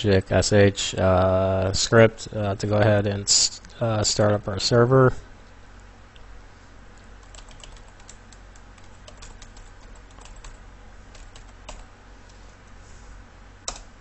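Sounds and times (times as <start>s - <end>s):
steady low hum: 0.0s - 14.0s
keyboard keys clicking: 7.2s - 11.8s.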